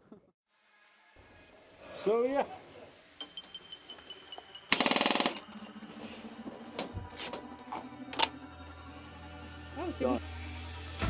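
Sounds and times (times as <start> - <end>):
airsoft gun automatic burst: 4.7 - 5.5.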